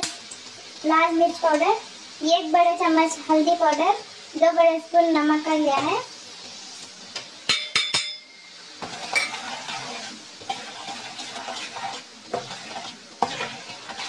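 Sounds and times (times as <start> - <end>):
hot oil sizzling: 0.0 - 14.0
spoon stirring and scraping pan: 5.7 - 14.0
steel plate clinking on pan: 7.5 - 9.5.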